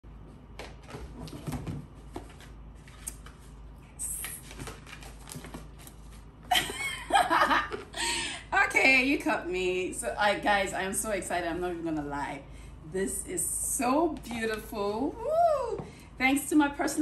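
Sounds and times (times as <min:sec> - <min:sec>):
cardboard and paper rustling: 0:00.6 - 0:06.4
woman speaking: 0:08.4 - 0:17.0.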